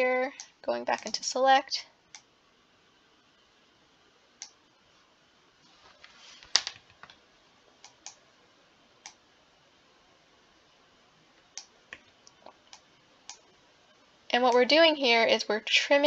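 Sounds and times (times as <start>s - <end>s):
computer mouse clicking: 11.4s - 13.5s.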